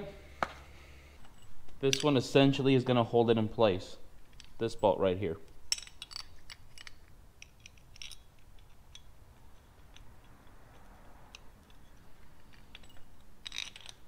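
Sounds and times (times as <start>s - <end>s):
metal parts clicking and tapping: 1.2s - 2.2s, 4.2s - 4.7s, 5.5s - 14.0s.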